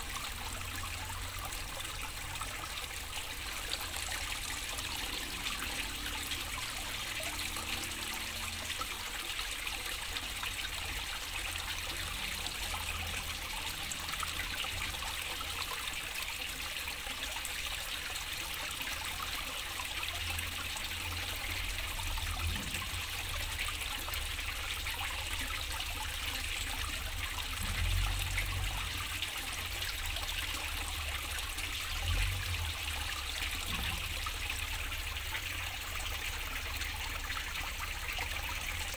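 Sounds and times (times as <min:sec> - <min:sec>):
water trickling into pond: 0:00.0 - 0:38.9.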